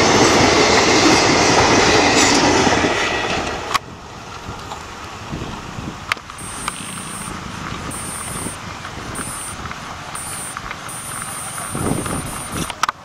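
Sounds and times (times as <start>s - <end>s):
train wheels rumbling on track: 0.0s - 12.8s
faint clicks: 6.1s - 7.3s, 9.2s - 13.0s.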